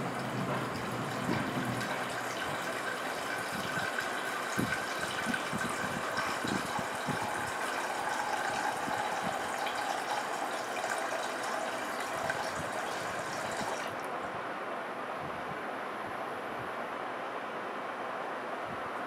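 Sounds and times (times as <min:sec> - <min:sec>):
water pouring into metal saucepan: 0:00.0 - 0:14.1
pump humming: 0:00.0 - 0:14.2.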